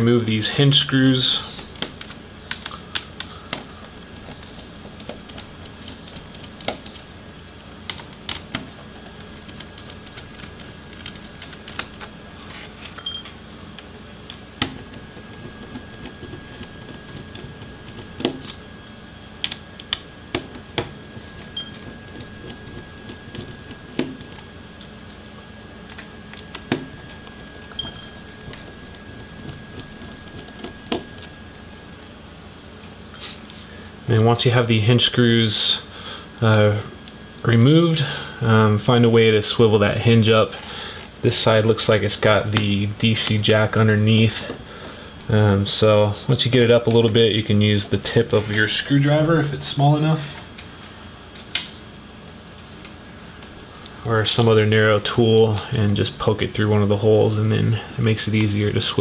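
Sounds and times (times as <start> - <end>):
brief metallic rings: 13.0 - 13.4, 27.7 - 28.2.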